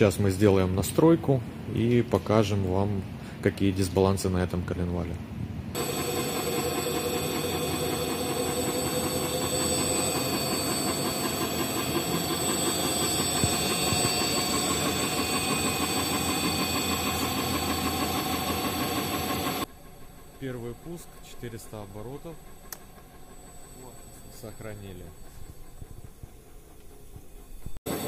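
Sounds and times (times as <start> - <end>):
crankshaft spinning on balancing machine: 5.8 - 26.2.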